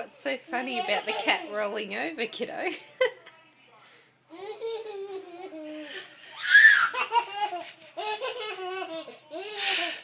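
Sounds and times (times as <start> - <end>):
toddler laughing: 4.3 - 9.5.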